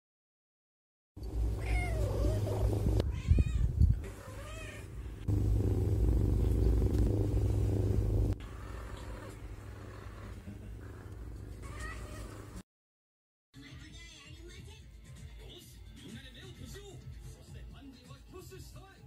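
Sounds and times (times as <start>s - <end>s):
cat purring: 1.5s - 3.0s, 4.0s - 12.6s
cat meowing: 1.6s - 4.9s, 11.6s - 12.4s.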